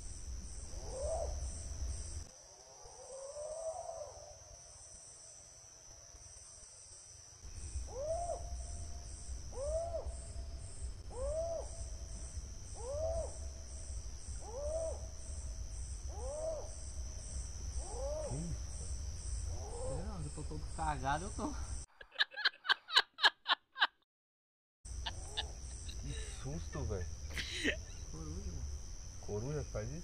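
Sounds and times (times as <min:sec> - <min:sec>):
crickets chirring: 0:00.0 - 0:23.3, 0:24.9 - 0:30.0
animal calling: 0:25.0 - 0:28.1.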